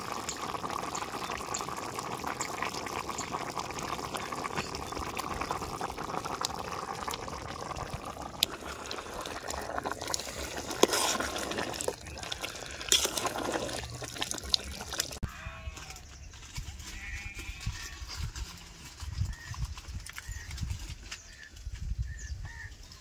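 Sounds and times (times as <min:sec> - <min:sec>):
liquid boiling in a pot: 0:00.0 - 0:15.2.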